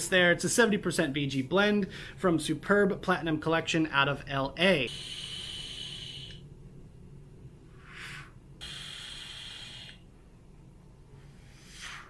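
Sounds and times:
person breathing: 1.8s - 2.2s, 7.7s - 8.5s, 11.1s - 12.0s
vape coil sizzling hiss: 4.9s - 6.4s, 8.0s - 10.0s.

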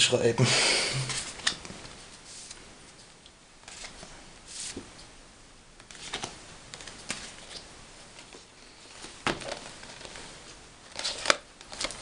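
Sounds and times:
postcards rustling and sliding: 1.0s - 2.6s, 3.6s - 5.0s, 5.8s - 12.0s.

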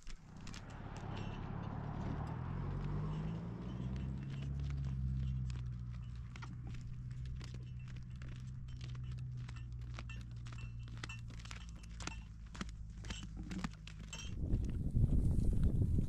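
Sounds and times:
footsteps on stony dirt road: 0.0s - 16.0s
wind rumble on microphone: 14.1s - 16.0s.

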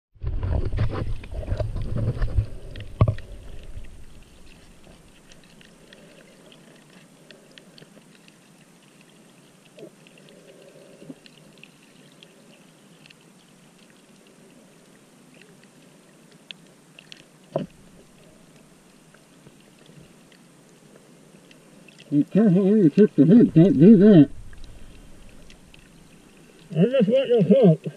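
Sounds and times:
underwater rumbling and knocking: 0.2s - 5.7s, 23.2s - 26.3s
crackling and ticking in water: 0.2s - 27.9s.

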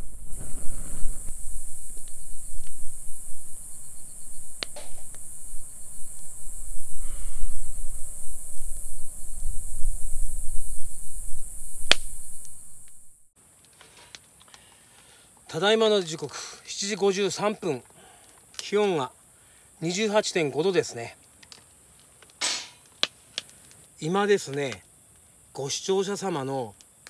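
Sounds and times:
wind rumble on microphone: 0.0s - 13.3s
steady high-pitched hiss: 0.0s - 27.0s.

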